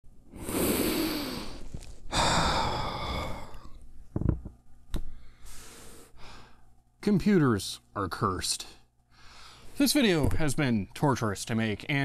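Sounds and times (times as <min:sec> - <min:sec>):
man sighing heavily: 0:00.8 - 0:03.7
light breath: 0:09.1 - 0:09.8.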